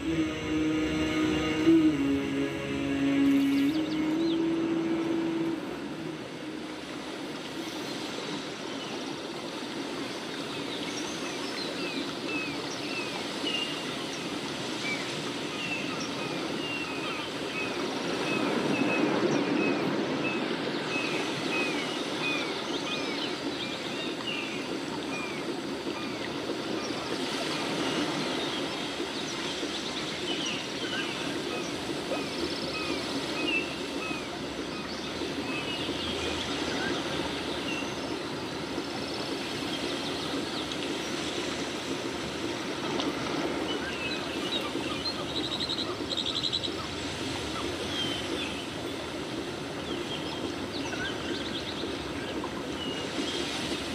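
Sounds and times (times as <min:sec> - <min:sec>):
steady outdoor rush: 0:00.0 - 0:11.6.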